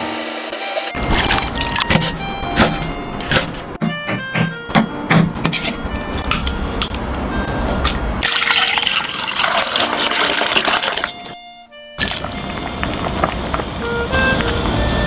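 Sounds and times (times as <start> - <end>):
background music: 0.0 - 15.0
knife cutting on wooden board: 1.1 - 3.7
water pouring into saucepan: 8.2 - 11.2.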